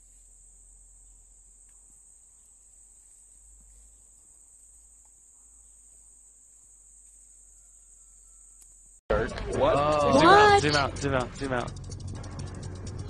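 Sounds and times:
crickets chirring: 0:00.0 - 0:09.0, 0:09.6 - 0:13.0
low rumble: 0:09.1 - 0:13.0.

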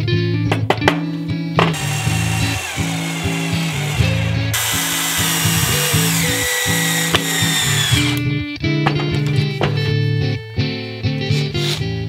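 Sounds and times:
background music: 0:00.0 - 0:12.0
cordless drill driving screws: 0:01.7 - 0:08.2.

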